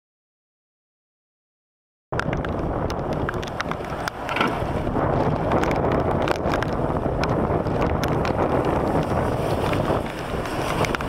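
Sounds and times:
wind buffeting microphone: 0:02.1 - 0:11.0
rain falling: 0:02.2 - 0:11.0
car tyres hissing on wet road: 0:08.4 - 0:11.0.

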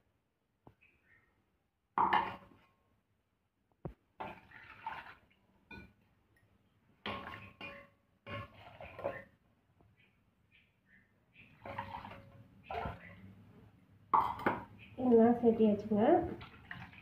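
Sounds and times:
water sloshing in steel jar: 0:04.2 - 0:06.0, 0:07.1 - 0:09.3, 0:11.6 - 0:13.3, 0:16.3 - 0:17.0.

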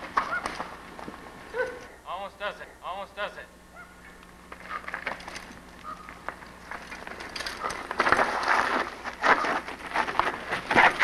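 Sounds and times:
bike tyres crunching over stones: 0:00.0 - 0:01.9, 0:04.2 - 0:11.0
bike rattling: 0:00.0 - 0:02.0, 0:03.8 - 0:11.0.

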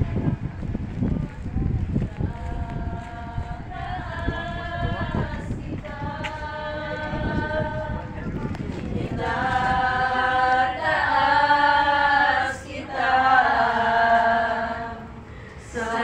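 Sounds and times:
women singing without instruments: 0:09.3 - 0:16.0.

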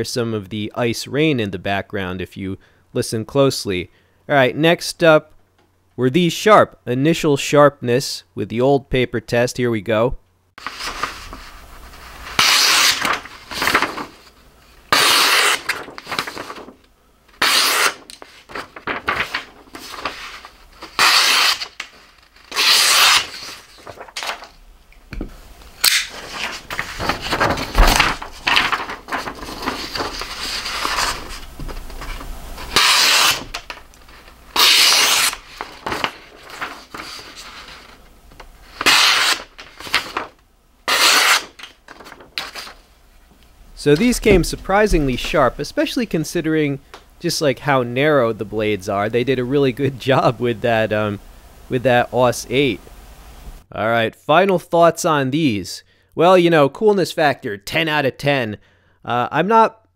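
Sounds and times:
knife slicing paper: 0:10.6 - 0:14.3, 0:14.9 - 0:16.7, 0:17.4 - 0:24.5, 0:25.8 - 0:31.5, 0:32.6 - 0:38.0, 0:38.7 - 0:40.3, 0:40.9 - 0:42.8
paper rustling: 0:10.6 - 0:24.6, 0:25.8 - 0:42.9, 0:43.8 - 0:46.5.

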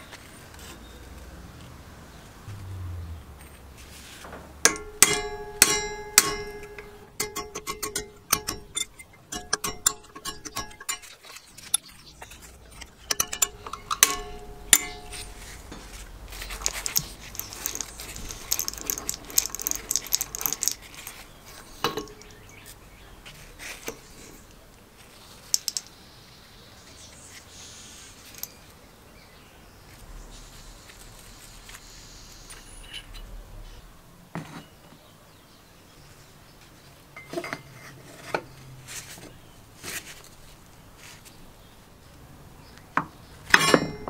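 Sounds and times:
metal part ringing: 0:04.6 - 0:22.8, 0:43.5 - 0:44.0
small metal parts clinking: 0:04.6 - 0:22.8, 0:25.2 - 0:26.0, 0:28.2 - 0:28.7, 0:43.5 - 0:44.0
screwdriver scraping steel shaft: 0:04.7 - 0:22.7.

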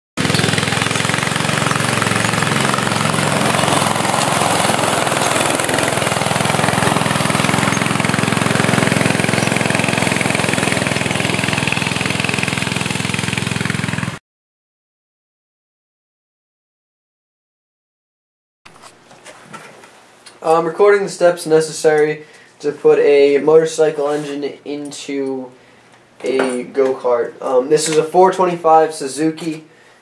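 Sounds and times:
kart sliding on gravel: 0:00.2 - 0:14.2
small engine running: 0:00.2 - 0:14.2.

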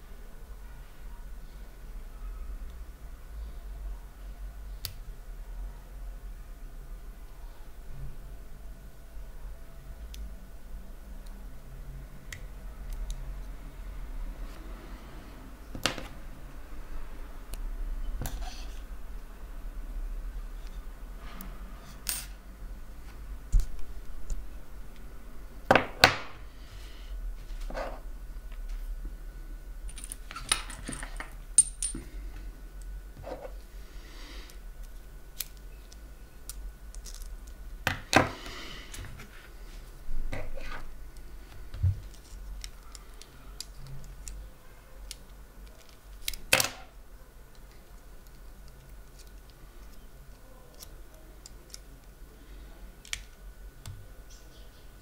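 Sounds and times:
metal lock parts clicking: 0:29.9 - 0:32.0.

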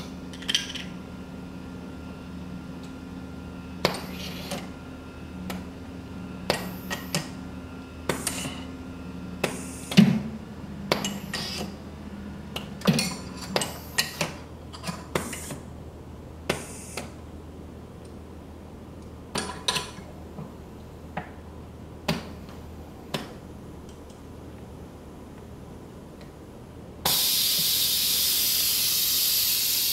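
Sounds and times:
steady low hum: 0:00.0 - 0:29.9
air hissing: 0:27.0 - 0:29.9.

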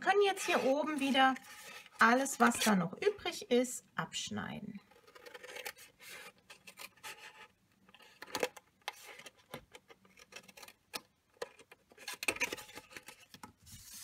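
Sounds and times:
paper rustling: 0:11.5 - 0:14.0.

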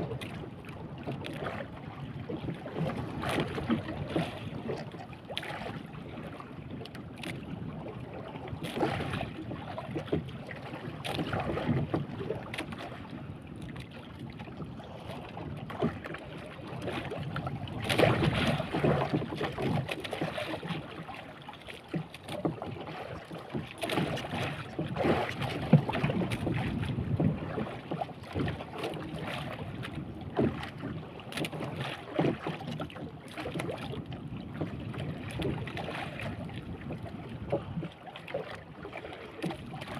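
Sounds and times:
water splashing against boat hull: 0:00.0 - 0:39.9
wind on microphone: 0:24.0 - 0:31.2, 0:33.6 - 0:38.0.

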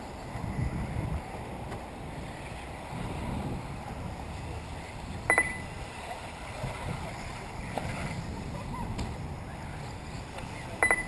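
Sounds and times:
wind buffeting microphone: 0:00.0 - 0:10.8
brief sharp tone: 0:05.3 - 0:05.7.

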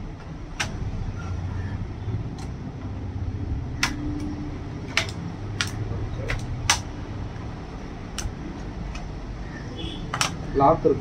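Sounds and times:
sharp plastic clicks: 0:00.1 - 0:00.9, 0:03.7 - 0:07.1, 0:08.1 - 0:09.2, 0:10.0 - 0:10.6.

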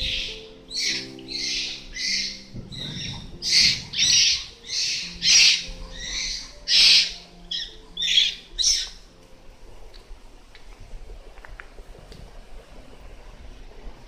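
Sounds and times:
high-pitched animal calls: 0:00.0 - 0:09.0.

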